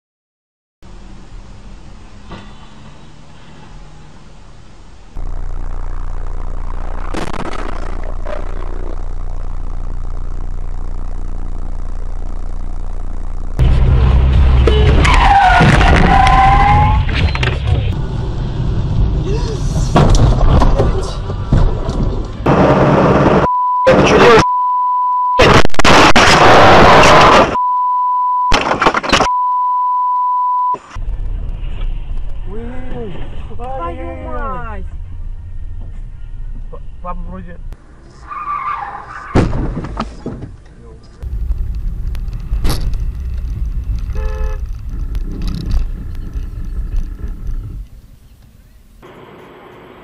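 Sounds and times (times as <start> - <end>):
noisy in-car sound: 0.8 - 50.0
car horn blast: 14.6 - 15.2, 44.1 - 44.7
car crash knocks: 19.9 - 22.2, 39.3 - 40.5
censor beep: 23.4 - 25.5, 27.5 - 28.6, 29.2 - 30.9.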